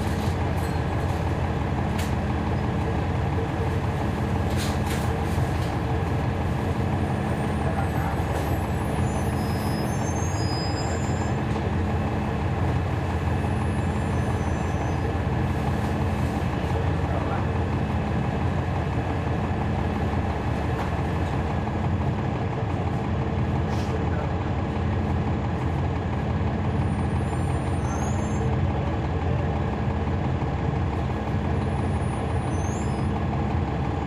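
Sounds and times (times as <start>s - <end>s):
bus diesel engine running: 0.0s - 34.0s
faint high squeaks: 8.4s - 11.4s.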